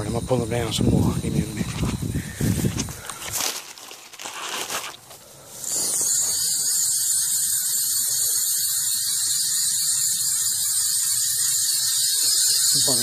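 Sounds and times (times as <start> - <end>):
fishing reel whirring: 5.4 - 13.0
fast fine ticking: 5.6 - 13.0.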